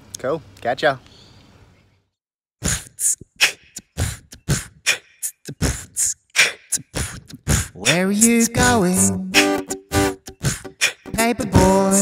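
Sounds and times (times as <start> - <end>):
beatboxing: 2.6 - 12.0.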